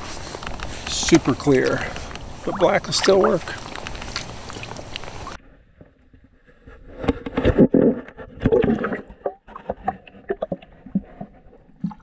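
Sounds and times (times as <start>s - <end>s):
muffled water sloshing and gurgling: 1.4s - 6.2s, 7.0s - 12.0s.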